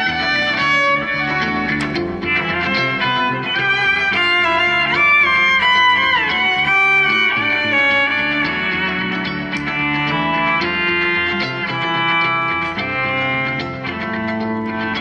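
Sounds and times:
layered violin loops: 0.0s - 15.0s
repeated plucked figure: 0.0s - 15.0s
violin bowed: 0.0s - 15.0s.

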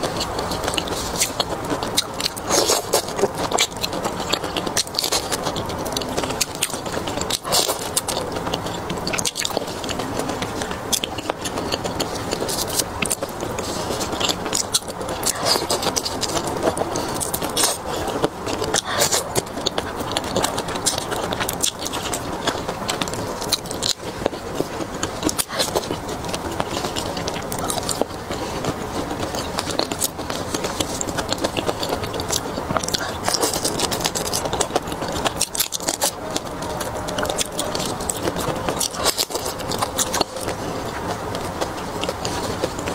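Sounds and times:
chewing prawn shells: 0.0s - 42.9s.

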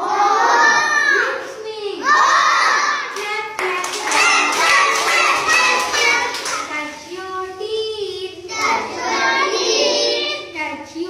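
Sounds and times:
children singing in unison: 0.0s - 1.0s, 3.8s - 6.7s, 8.5s - 10.5s
hand clapping: 3.2s - 6.7s.

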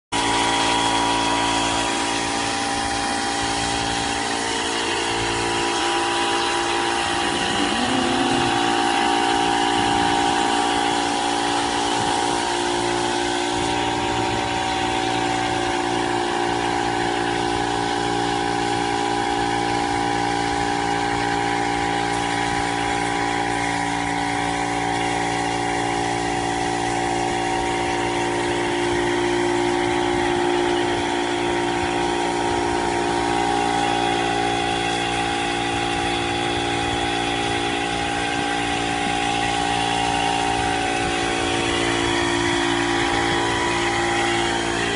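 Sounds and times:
paint spray gun hissing: 0.2s - 16.9s
air compressor humming: 0.2s - 44.9s.

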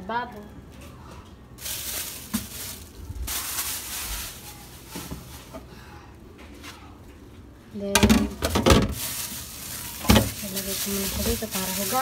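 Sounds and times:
plastic bag crinkling: 1.6s - 5.5s, 8.7s - 12.0s.

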